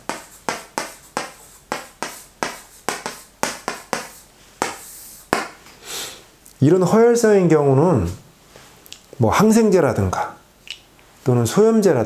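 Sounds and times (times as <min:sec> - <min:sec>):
chalk scraping a line: 0:00.0 - 0:05.6
chalk tapping and scratching: 0:00.0 - 0:05.7.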